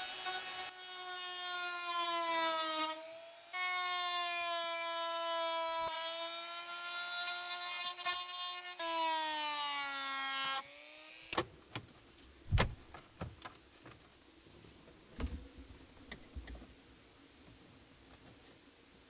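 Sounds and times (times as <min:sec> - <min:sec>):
heavy thump: 0:12.5 - 0:13.0, 0:15.2 - 0:15.8.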